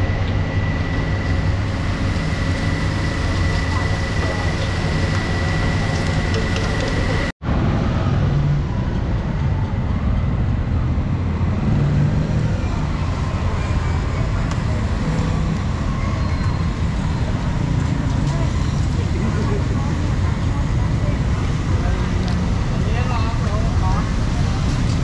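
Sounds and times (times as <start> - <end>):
road traffic: 0.0 - 25.0
street market din: 0.0 - 25.0.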